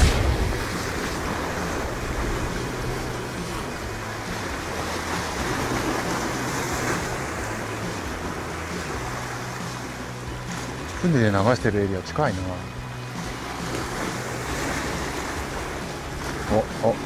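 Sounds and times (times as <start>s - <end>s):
wind blowing: 0.0s - 11.1s
sea waves washing over rocks: 0.0s - 17.0s.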